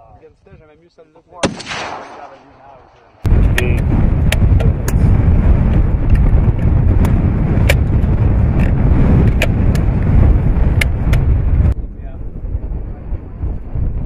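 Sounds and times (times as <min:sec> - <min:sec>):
wind rumble on microphone: 0:00.0 - 0:00.8, 0:03.2 - 0:14.0.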